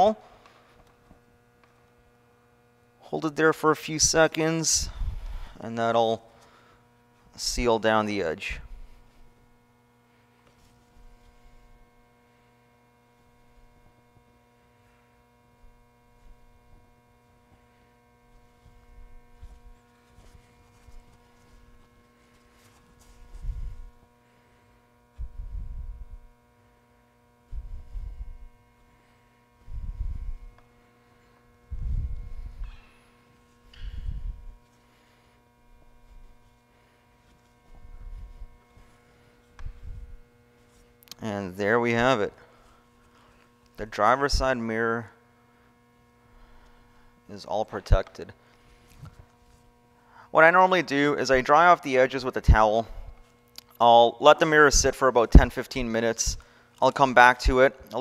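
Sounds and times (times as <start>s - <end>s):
faint electrical mains hum: 0.0s - 58.0s
soft low thumps and rubs: 18.4s - 24.0s, 37.5s - 40.9s.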